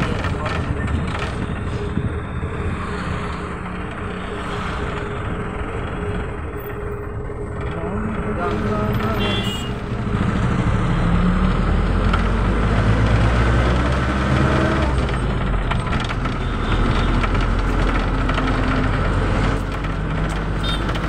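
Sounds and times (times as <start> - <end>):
road noise: 0.0 - 21.0
vehicle engine hum: 0.0 - 21.0.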